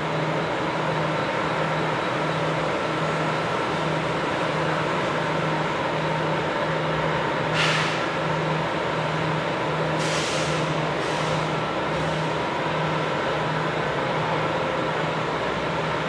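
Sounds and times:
short hisses: 7.6s - 8.0s.

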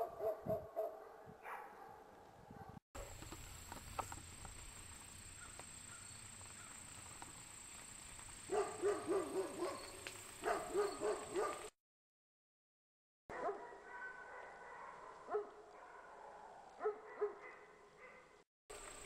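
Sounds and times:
dog barking: 0.0s - 3.1s, 8.5s - 11.7s, 13.3s - 18.4s.

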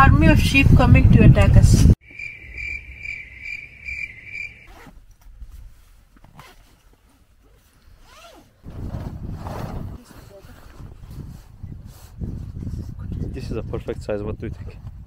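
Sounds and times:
cricket chirping: 2.0s - 4.7s
fabric bag rustling: 4.7s - 11.0s.

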